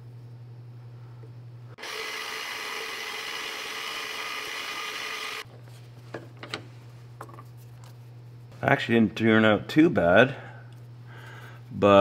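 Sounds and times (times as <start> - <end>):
milling machine high whine: 1.8 - 5.4.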